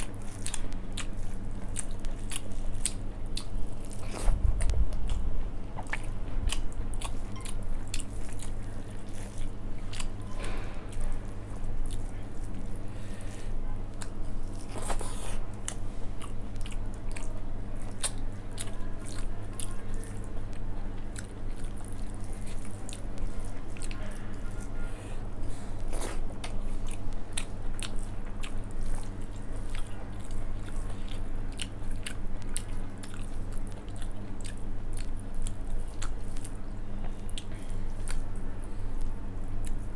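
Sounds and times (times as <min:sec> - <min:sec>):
chewing and wet mouth clicks: 0:00.0 - 0:05.2, 0:05.8 - 0:10.2, 0:13.9 - 0:23.2, 0:25.8 - 0:36.6, 0:37.3 - 0:38.3, 0:39.6 - 0:39.9
steady low hum: 0:00.0 - 0:39.9.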